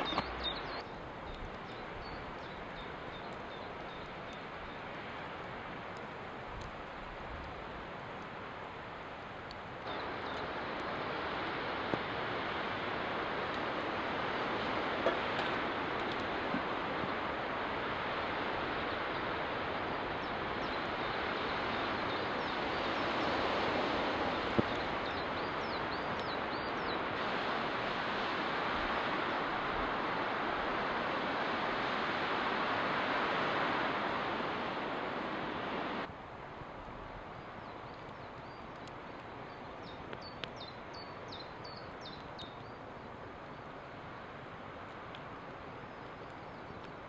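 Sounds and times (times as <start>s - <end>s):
campfire pop: 0.0s - 4.5s, 11.8s - 17.4s, 24.4s - 26.4s
birds chirping: 0.0s - 5.0s, 9.8s - 11.2s, 18.6s - 27.2s, 37.3s - 43.6s
wind rushing through forest: 0.0s - 47.0s.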